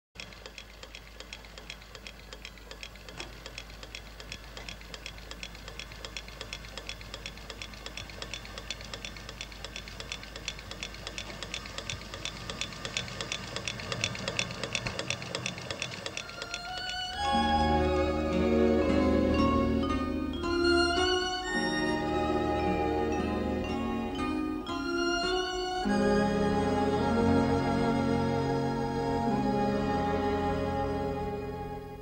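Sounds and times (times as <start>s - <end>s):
mechanical ticking: 0.2s - 18.0s.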